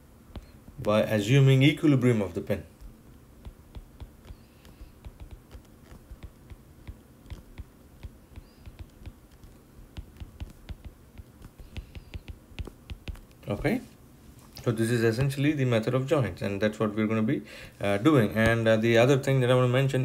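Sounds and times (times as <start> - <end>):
stylus tapping on glass screen: 0.3 - 0.6, 2.8 - 13.4.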